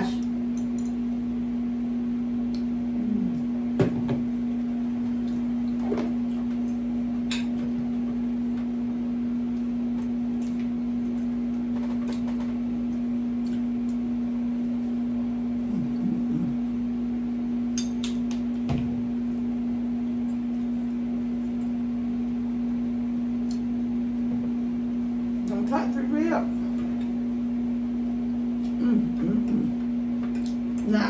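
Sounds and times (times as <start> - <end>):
low electrical hum: 0.0 - 31.0
clicks and smacks of eating: 2.4 - 3.5, 5.0 - 8.7, 9.5 - 14.1, 17.7 - 18.7, 23.4 - 23.9, 28.3 - 30.9.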